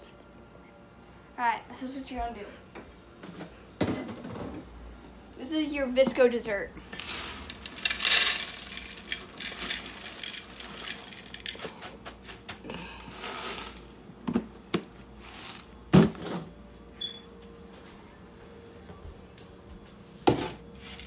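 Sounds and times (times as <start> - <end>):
cereal pouring into glass bowl: 7.0 - 11.6.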